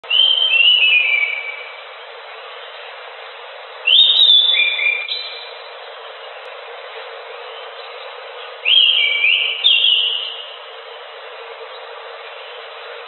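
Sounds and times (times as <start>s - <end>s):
thrush singing whistled notes: 0.0s - 2.0s, 3.8s - 6.5s, 7.4s - 10.8s
steady background hiss: 0.0s - 13.0s.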